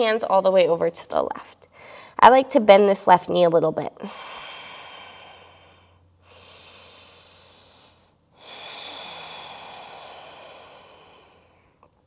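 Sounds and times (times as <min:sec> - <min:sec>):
woman breathing slowly: 0:01.7 - 0:02.2, 0:04.0 - 0:12.0.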